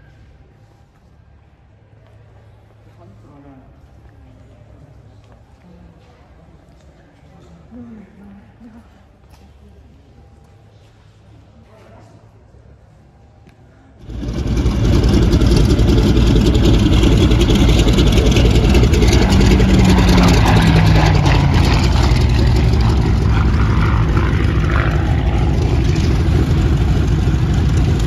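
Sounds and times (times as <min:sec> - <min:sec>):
passing engine falling in pitch: 0:14.0 - 0:28.0
piston aircraft engine running: 0:14.0 - 0:28.0.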